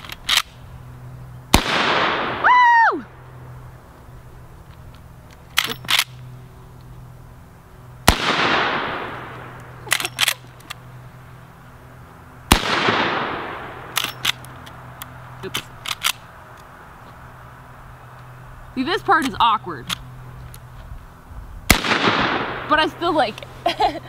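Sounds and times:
rifle shots with echo: 0:01.5 - 0:02.4, 0:08.1 - 0:09.6, 0:12.5 - 0:14.3, 0:21.7 - 0:23.0.

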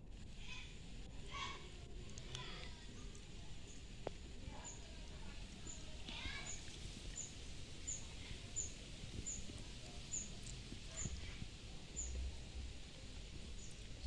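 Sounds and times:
wind rumble on microphone: 0:00.0 - 0:14.0
small bird chirping: 0:05.6 - 0:11.2, 0:13.6 - 0:13.9.

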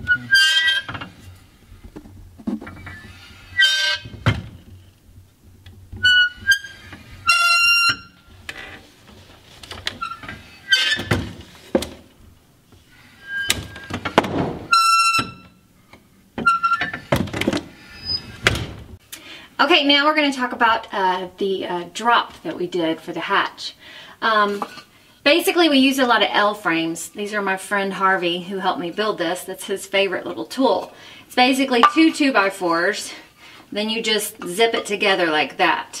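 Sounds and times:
metal chair squealing: 0:00.0 - 0:01.4, 0:02.6 - 0:04.8, 0:06.0 - 0:08.9, 0:09.8 - 0:11.6, 0:12.9 - 0:15.6, 0:16.4 - 0:17.1, 0:17.7 - 0:18.7.

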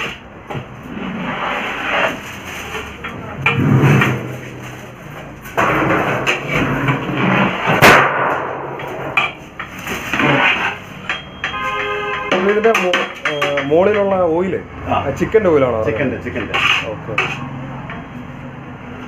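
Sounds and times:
ladle scraping metal pot: 0:00.9 - 0:07.8, 0:08.8 - 0:14.0, 0:16.4 - 0:17.6
sharp metal clank: 0:07.8 - 0:09.8, 0:10.5 - 0:13.7.

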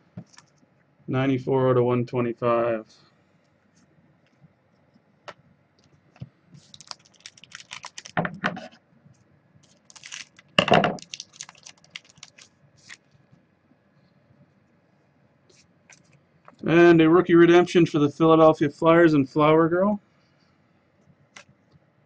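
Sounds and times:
cards rustling: 0:06.6 - 0:08.2, 0:09.6 - 0:13.0
plastic card holders crinkling: 0:06.6 - 0:08.2, 0:09.6 - 0:13.0.

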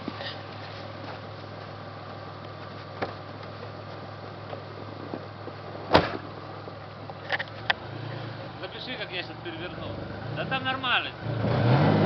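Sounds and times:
car engine idling: 0:00.0 - 0:11.7
car door shutting: 0:04.4 - 0:06.3.

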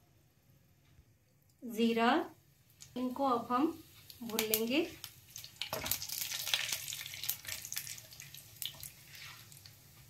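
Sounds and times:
spices sizzling in hot oil: 0:02.5 - 0:10.0
wooden spatula stirring: 0:04.9 - 0:10.0.

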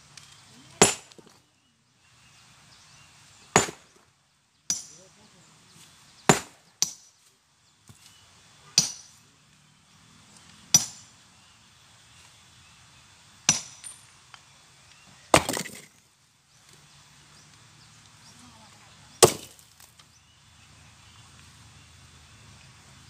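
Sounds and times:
hammer clinking on rock: 0:04.7 - 0:05.0, 0:08.8 - 0:09.1, 0:10.7 - 0:11.0, 0:13.5 - 0:14.1
rock clattering crash: 0:15.3 - 0:16.0.

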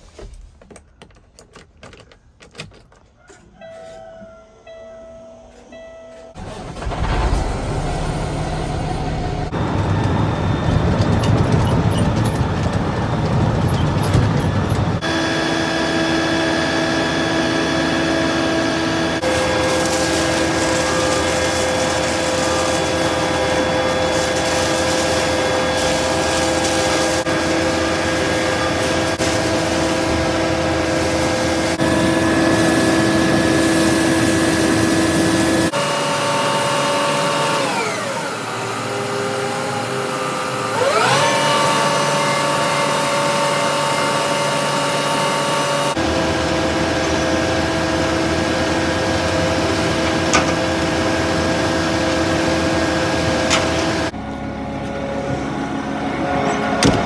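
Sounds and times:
truck heard from inside cab: 0:02.1 - 0:17.4, 0:45.4 - 0:57.0
engine and turning drum humming: 0:06.3 - 0:57.0
hose spraying water: 0:19.2 - 0:38.0.

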